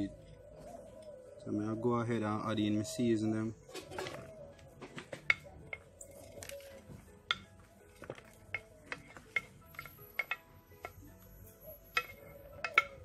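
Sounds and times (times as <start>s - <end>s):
faint background music: 0.0s - 13.0s
utensils clinking against dishes: 3.7s - 6.4s, 8.5s - 11.1s, 11.8s - 13.0s.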